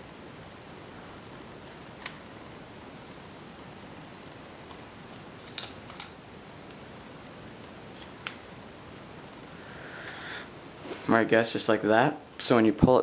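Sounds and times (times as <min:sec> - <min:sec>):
low hiss: 0:00.0 - 0:13.0
hands handling tape and paper: 0:05.4 - 0:06.8.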